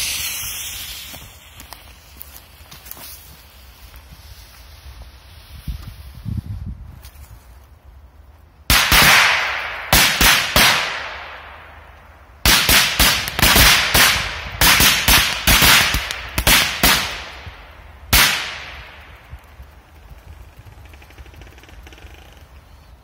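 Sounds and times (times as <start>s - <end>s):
firecrackers banging: 0.0s - 4.0s, 8.7s - 21.3s.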